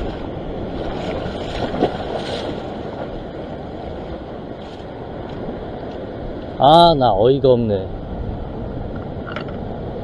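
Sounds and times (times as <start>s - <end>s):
surf breaking on rocks: 0.0s - 6.6s
wind buffeting microphone: 0.0s - 10.0s.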